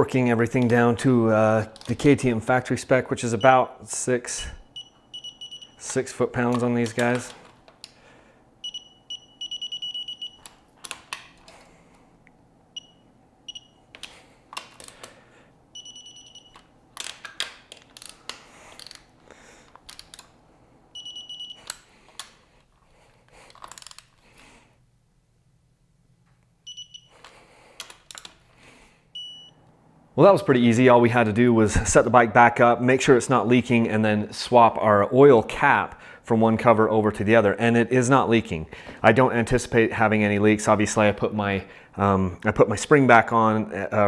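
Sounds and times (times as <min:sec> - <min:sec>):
torque wrench beeps: 0:04.6 - 0:05.9, 0:08.6 - 0:10.5, 0:12.8 - 0:13.8, 0:15.8 - 0:16.6, 0:21.0 - 0:21.7, 0:26.7 - 0:27.1, 0:29.2 - 0:29.6.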